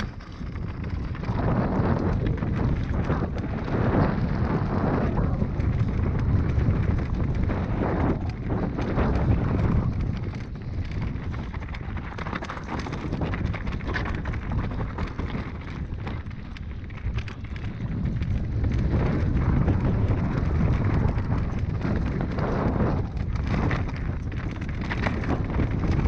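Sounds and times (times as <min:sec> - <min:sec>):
bike clattering: 0:00.0 - 0:26.0
wind buffeting microphone: 0:00.0 - 0:26.0.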